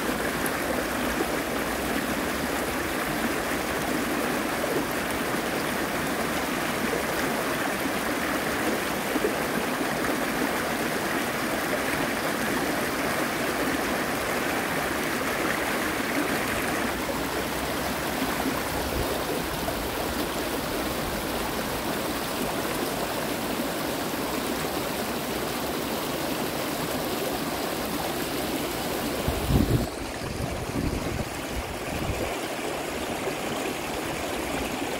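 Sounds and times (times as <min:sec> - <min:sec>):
creek water rushing over rocks: 0:00.0 - 0:34.9.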